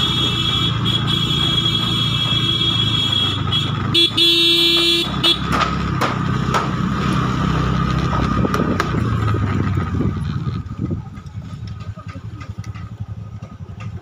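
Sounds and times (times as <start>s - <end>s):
vehicle horn tooting: 0.0s - 5.5s
motor scooter running: 0.0s - 14.0s.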